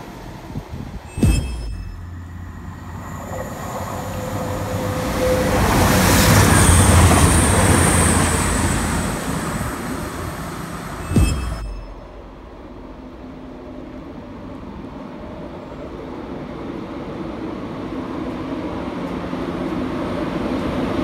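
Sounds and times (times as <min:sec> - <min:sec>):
diesel train passing at speed: 0:00.0 - 0:01.2, 0:01.8 - 0:11.2, 0:11.8 - 0:21.0.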